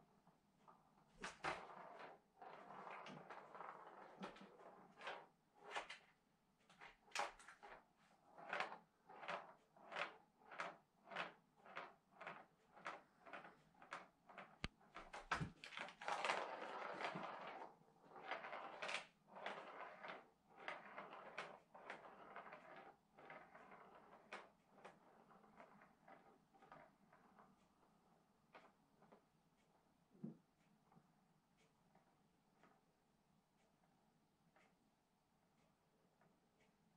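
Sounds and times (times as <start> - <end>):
ball rattling around plastic track: 1.2 - 6.1, 6.7 - 28.8.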